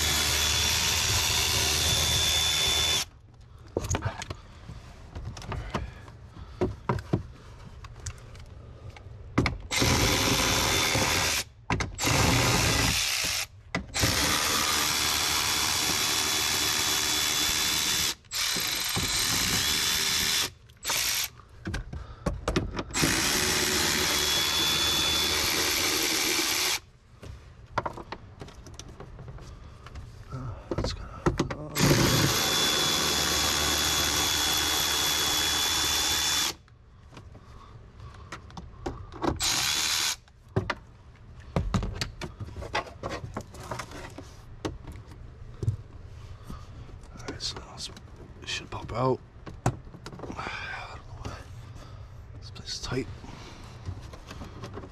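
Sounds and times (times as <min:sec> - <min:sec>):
power driver whining: 0:00.0 - 0:03.2, 0:09.6 - 0:21.4, 0:22.8 - 0:26.8, 0:31.6 - 0:36.7, 0:39.4 - 0:40.3.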